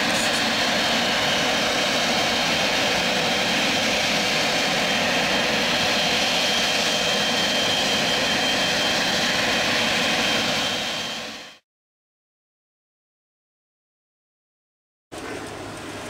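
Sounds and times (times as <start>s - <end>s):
jet engines running: 0.0s - 11.6s, 15.2s - 16.0s.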